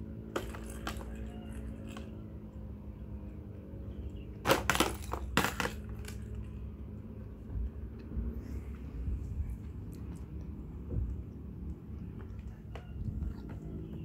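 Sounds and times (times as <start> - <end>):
small ball clattering in plastic tray: 0.3 - 2.2, 4.4 - 6.4.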